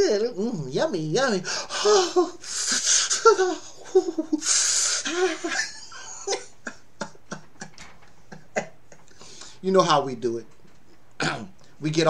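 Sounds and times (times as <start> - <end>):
wheezing in-breaths: 1.5 - 3.3, 4.4 - 5.2, 9.1 - 9.6
man laughing hard: 1.5 - 9.2.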